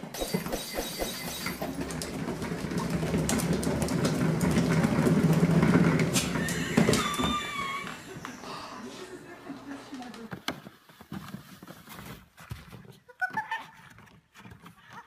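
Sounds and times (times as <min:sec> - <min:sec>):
cat exercise wheel rumbling: 0:00.1 - 0:11.4
wavering high tone: 0:00.2 - 0:01.7.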